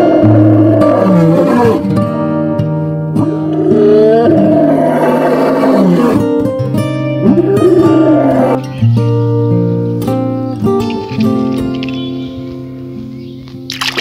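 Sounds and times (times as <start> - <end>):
lion roaring: 0.0 - 1.9, 3.3 - 6.4, 7.2 - 8.7
acoustic guitar music: 0.0 - 13.8.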